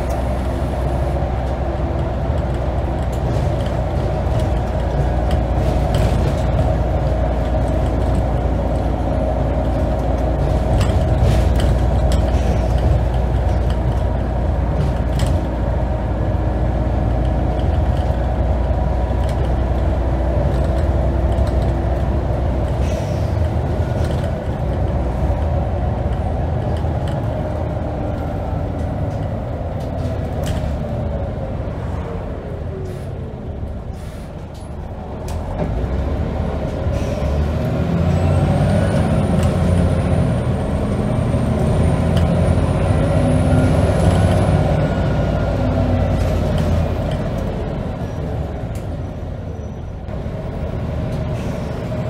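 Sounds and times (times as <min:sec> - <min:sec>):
bus diesel engine running: 0:00.0 - 0:52.0
interior rattles and clicks: 0:01.3 - 0:31.5.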